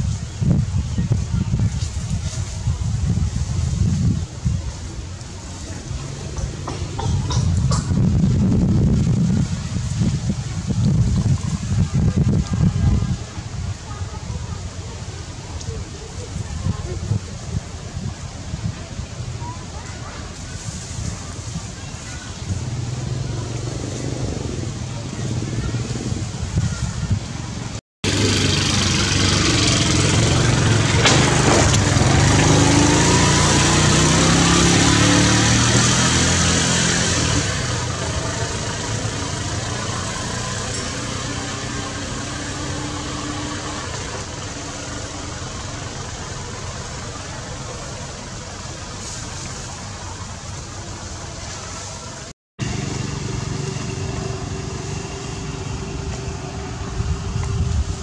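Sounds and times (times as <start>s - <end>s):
motor engine running: 28.0s - 36.5s, 52.6s - 58.0s.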